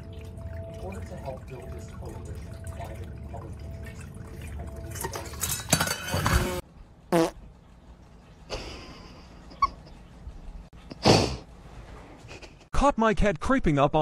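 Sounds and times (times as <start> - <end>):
trickling water: 0.0 - 11.0
water fountain pump humming: 0.0 - 11.0.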